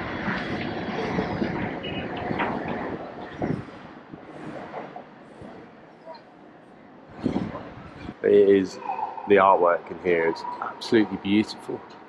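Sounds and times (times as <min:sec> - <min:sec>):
rumbling outdoor background noise: 0:00.0 - 0:12.0.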